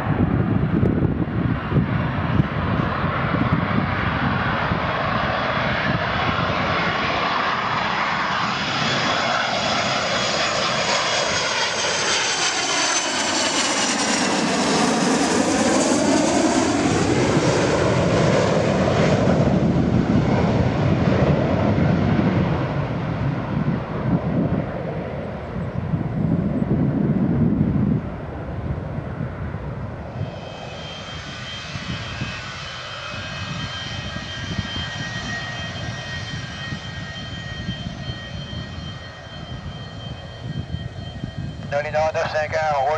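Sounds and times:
jet engines passing overhead: 0:00.0 - 0:42.9
jet engines whining: 0:00.0 - 0:42.9.

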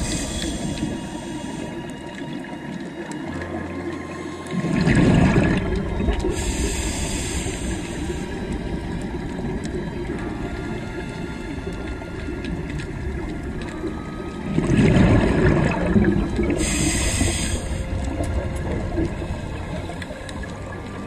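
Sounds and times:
regulator hissing inhale: 0:00.0 - 0:02.0, 0:06.3 - 0:08.6, 0:16.5 - 0:18.0
steady low rumble: 0:00.0 - 0:02.0, 0:04.6 - 0:21.0
exhaled bubbles gushing: 0:00.0 - 0:21.0.

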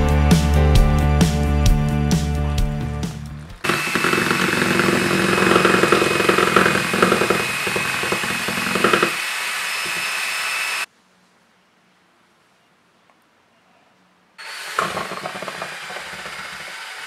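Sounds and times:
drill motor whine: 0:03.4 - 0:10.9, 0:14.4 - 0:17.0.

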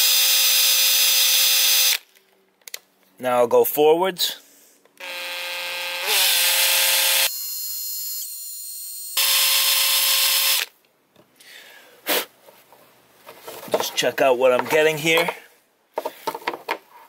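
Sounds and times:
cordless drill boring into plastic: 0:00.0 - 0:02.0, 0:05.0 - 0:10.7.

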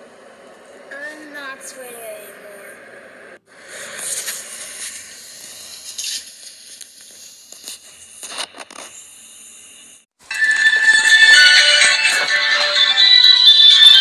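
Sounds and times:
loud music: 0:10.3 - 0:14.0.

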